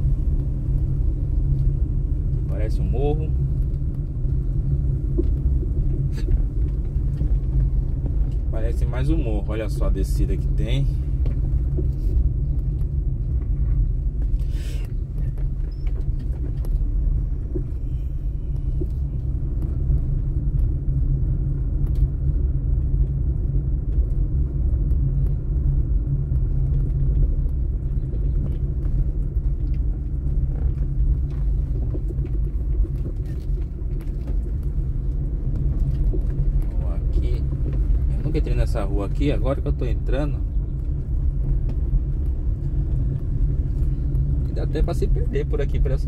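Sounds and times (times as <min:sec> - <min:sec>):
car driving over paving stones: 0:18.5 - 0:46.0.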